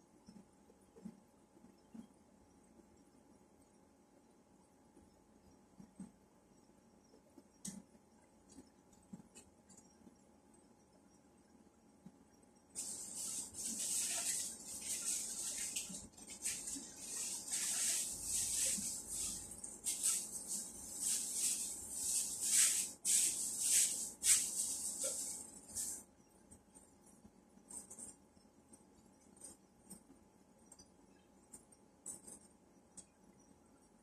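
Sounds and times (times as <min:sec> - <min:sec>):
rustling and crinkling by hand: 0:12.8 - 0:26.9.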